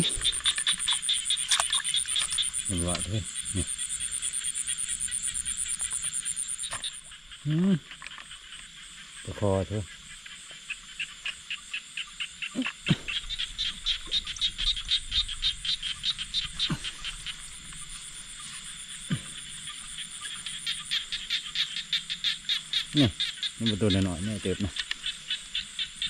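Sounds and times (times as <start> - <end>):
frogs calling in pulses: 0.0 - 26.0
short downward-sweeping frog calls: 0.0 - 26.0.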